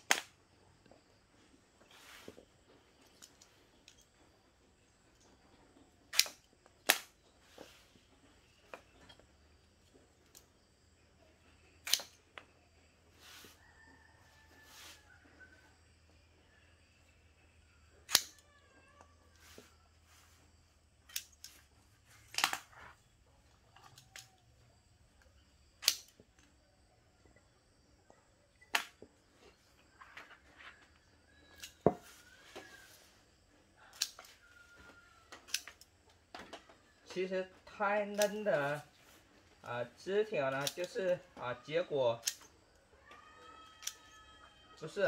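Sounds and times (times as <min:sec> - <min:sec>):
pruning shears snipping: 0:06.1 - 0:07.2, 0:11.8 - 0:12.2, 0:18.0 - 0:18.4, 0:38.0 - 0:38.8
shears click: 0:06.1 - 0:07.2, 0:11.8 - 0:12.5, 0:18.0 - 0:18.4, 0:21.1 - 0:22.7, 0:25.2 - 0:26.5, 0:33.9 - 0:34.4, 0:35.3 - 0:35.9, 0:37.9 - 0:38.9, 0:40.4 - 0:41.2, 0:42.2 - 0:42.5.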